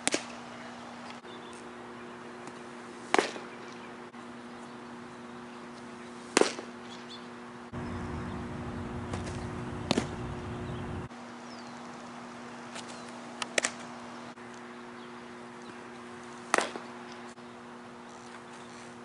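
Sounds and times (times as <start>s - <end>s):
steady low hum: 7.4s - 19.0s
low rumble: 7.8s - 11.1s
baseball popping into mitt: 9.1s - 10.3s.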